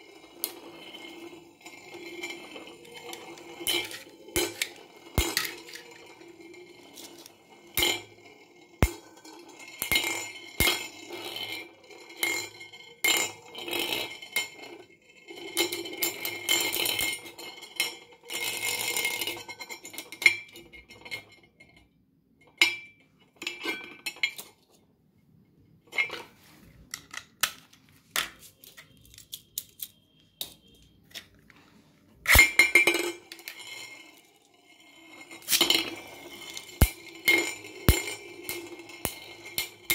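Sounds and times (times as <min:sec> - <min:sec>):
metal spinning tops clashing: 0:00.1 - 0:13.3, 0:32.2 - 0:39.9.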